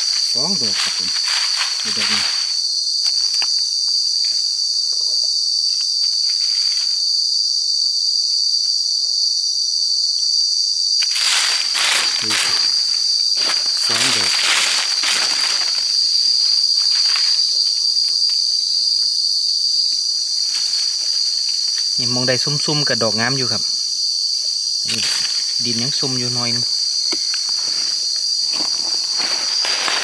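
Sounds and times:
insects droning: 0.0 - 30.0
rustling and crackling: 11.1 - 17.5, 27.4 - 30.0.

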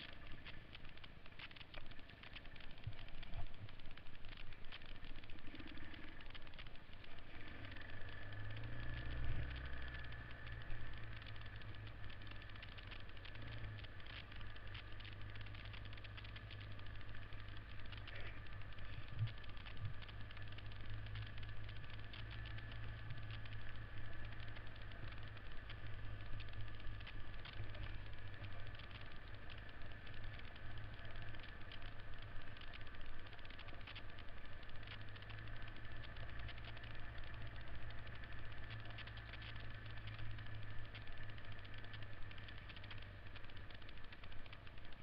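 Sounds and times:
small clicks and rattles: 0.0 - 45.0
dirt bike engine running: 7.4 - 34.2.

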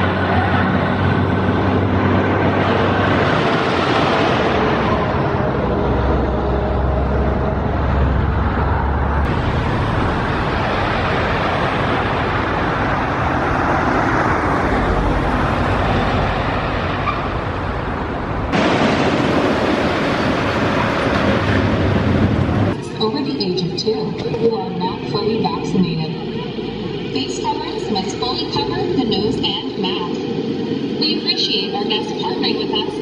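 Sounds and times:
roller coaster wheels rushing: 0.0 - 23.0.

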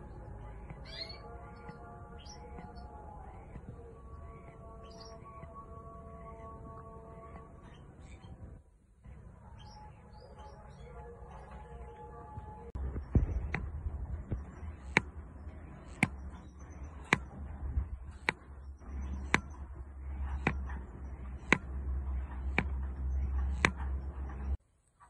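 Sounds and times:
steady low rumble: 0.0 - 9.6, 12.3 - 24.6
canaries chirping: 0.0 - 24.6
sharp ticks: 13.0 - 24.5.

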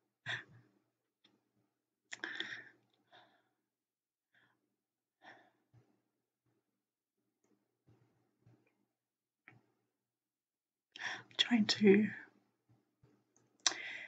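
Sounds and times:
woman breathing: 2.1 - 3.6, 11.0 - 11.4, 13.6 - 14.0.

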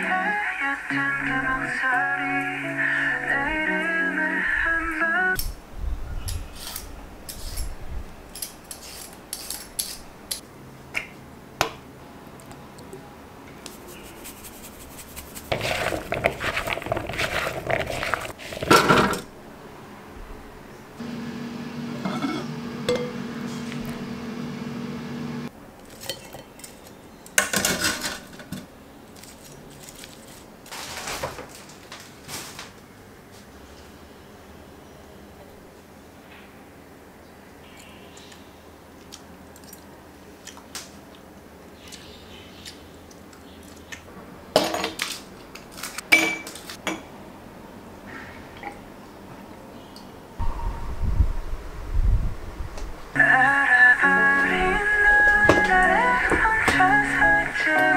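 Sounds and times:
air fryer humming: 20.4 - 25.5
dishware and utensils clinking: 22.0 - 23.2.

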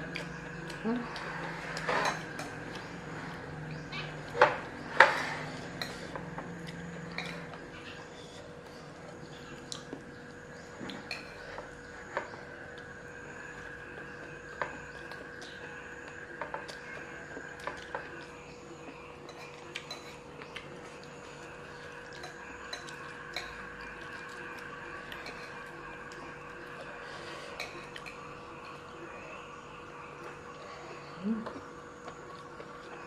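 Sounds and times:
metal spoon clinking on plates: 7.1 - 7.6, 19.2 - 20.3, 25.2 - 25.6, 27.6 - 28.2.

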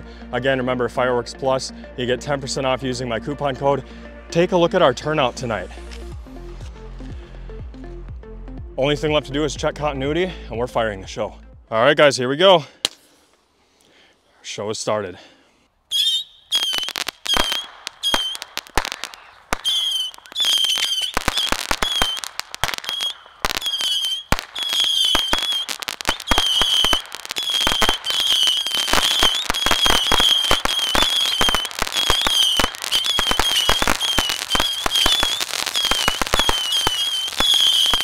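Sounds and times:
firework fountain crackling: 15.9 - 38.0
small missiles whistling and cracking: 15.9 - 38.0.

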